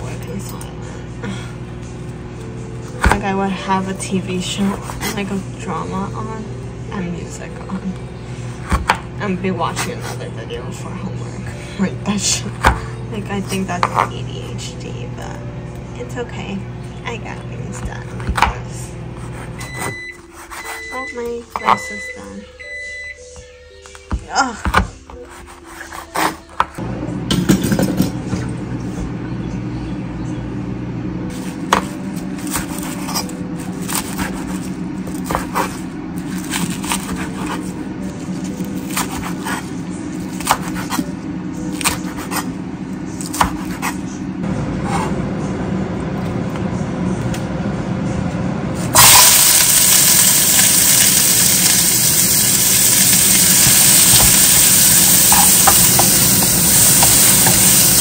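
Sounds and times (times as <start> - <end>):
bacon sizzling in frying pan: 49.0 - 58.0.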